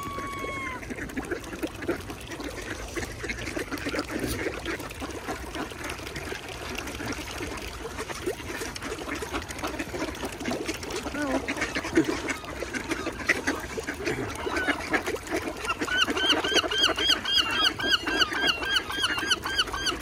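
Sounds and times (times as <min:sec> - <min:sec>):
ducks splashing on water: 0:00.0 - 0:20.0.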